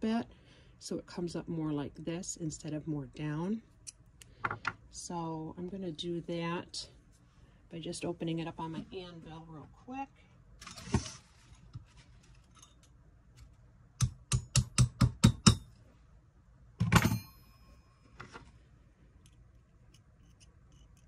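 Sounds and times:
hammer tapping on anvil: 14.0 - 15.7.

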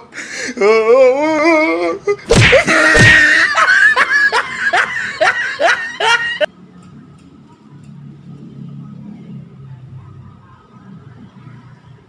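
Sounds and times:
person laughing: 0.6 - 6.5.

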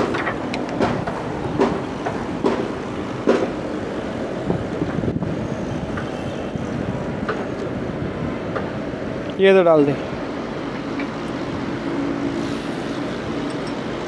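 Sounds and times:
sharp metallic knocks: 0.0 - 3.6.

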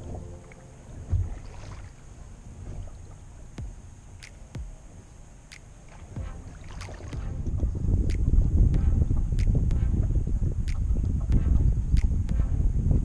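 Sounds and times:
water sloshing against hull: 0.0 - 4.5, 5.7 - 7.7
low rumble: 0.0 - 4.9, 6.1 - 13.0
dull thump: 1.1 - 1.8
sharp clicks: 3.6 - 4.8, 5.5 - 6.0, 8.0 - 8.4.

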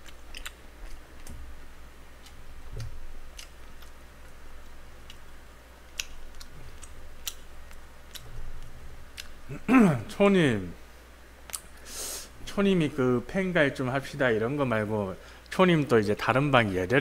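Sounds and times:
chewing and mouth smacks: 0.0 - 1.4, 2.2 - 9.4.

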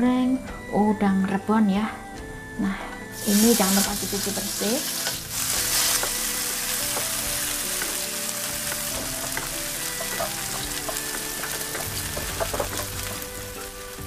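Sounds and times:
shrimp sizzling in hot oil: 3.2 - 14.0
wooden spatula scraping wok: 3.2 - 14.0.

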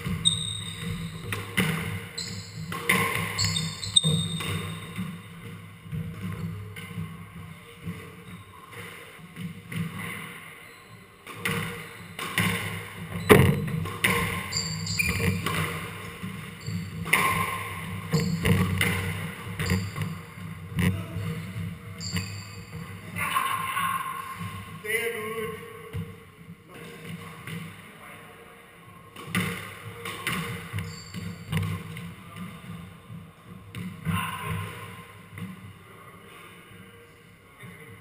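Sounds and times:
shoes squeaking on wooden floor: 0.0 - 6.7, 13.1 - 23.1, 30.8 - 31.8.

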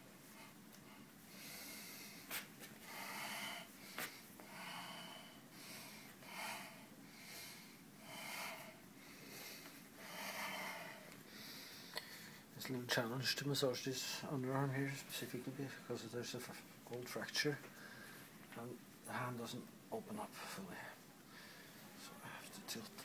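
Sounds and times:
person breathing: 0.2 - 12.5, 17.7 - 18.4, 20.4 - 22.5.

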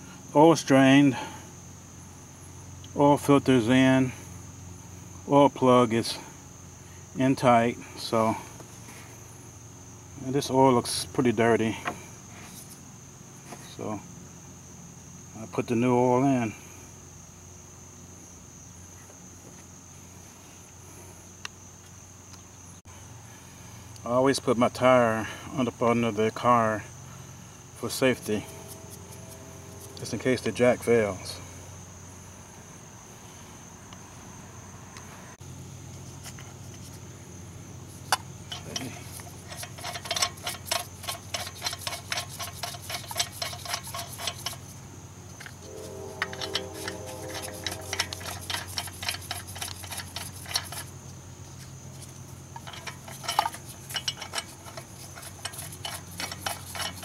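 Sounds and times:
insects trilling: 0.0 - 57.0
steady low hum: 25.2 - 57.0.

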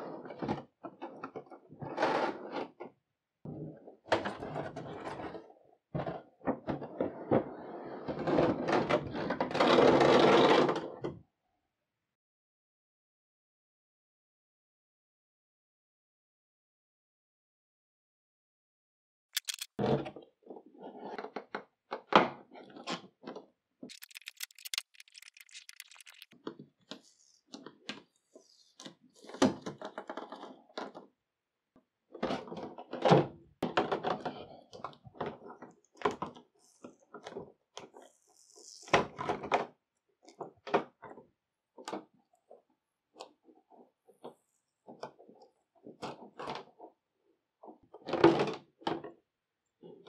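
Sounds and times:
plastic packaging crackling: 19.4 - 19.7, 23.9 - 26.3.

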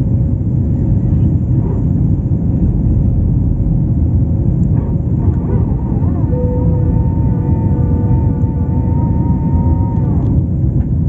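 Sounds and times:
jet engines rumbling: 0.0 - 11.0
high tone: 5.3 - 10.4.

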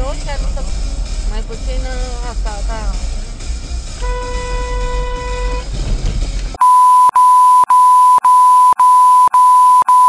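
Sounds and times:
car horn: 4.0 - 5.7
censor bleep tone: 6.6 - 10.0.

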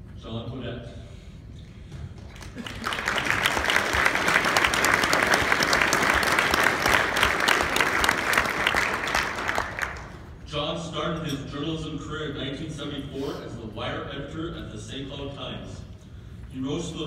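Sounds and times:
audience applauding: 2.3 - 10.3.

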